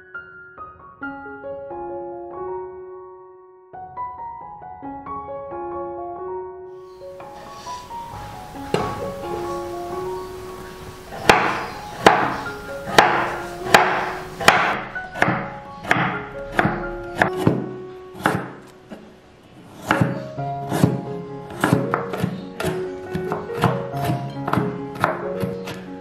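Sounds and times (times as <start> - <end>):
background music: 0.0 - 26.0
knife chopping on wooden board: 8.6 - 9.1, 11.1 - 19.1, 19.7 - 25.9.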